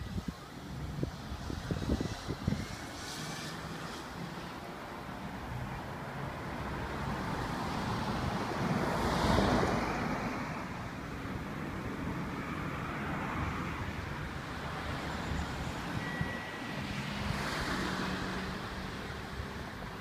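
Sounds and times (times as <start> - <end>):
wind buffeting microphone: 0.0 - 4.7
road traffic: 0.0 - 20.0
car passing close by: 1.4 - 10.8, 12.8 - 19.6.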